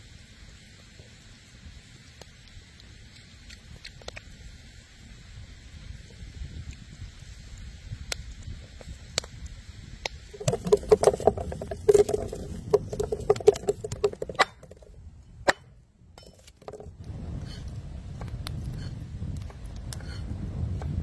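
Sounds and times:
wood fire crackling: 0.0 - 15.6, 16.2 - 21.0.

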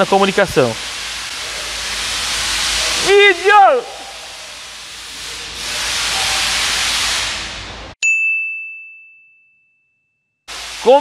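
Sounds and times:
steady hiss: 0.0 - 8.0, 10.5 - 11.0
bright ding: 8.0 - 10.5.

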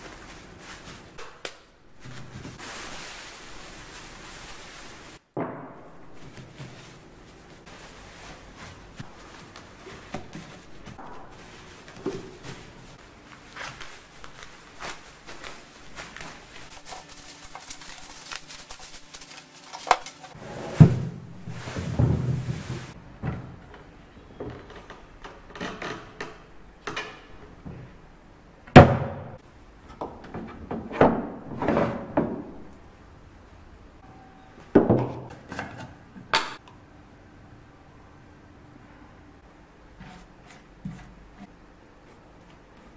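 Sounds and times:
plastic sheeting rustling: 0.0 - 23.0.

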